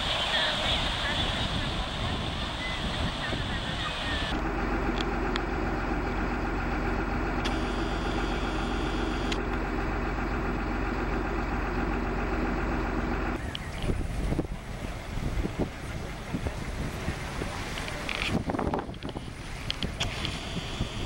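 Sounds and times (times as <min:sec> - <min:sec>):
engine idling: 0:00.0 - 0:21.0.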